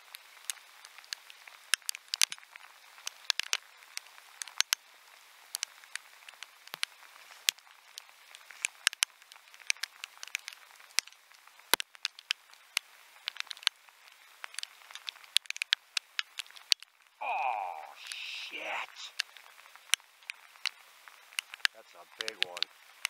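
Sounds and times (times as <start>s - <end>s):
rain hissing on river: 0.0s - 23.0s
raindrops tapping camera housing: 19.1s - 23.0s.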